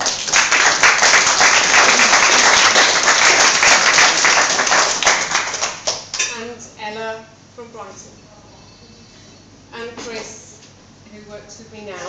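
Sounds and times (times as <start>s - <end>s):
roomful of people clapping: 0.0s - 6.2s.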